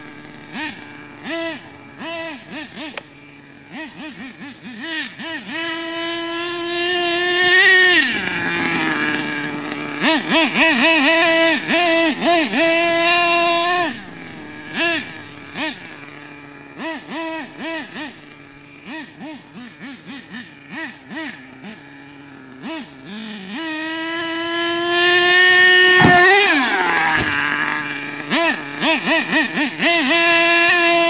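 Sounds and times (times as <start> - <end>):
small two-stroke engine revving: 0.0 - 31.0
thump: 26.0 - 27.4.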